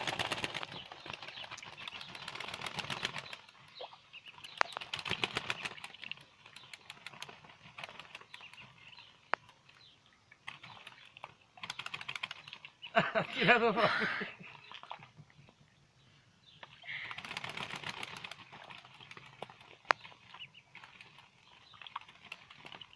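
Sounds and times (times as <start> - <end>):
duck wings flapping in straw: 0.0 - 3.6, 4.5 - 8.8, 10.6 - 13.1, 16.9 - 22.9.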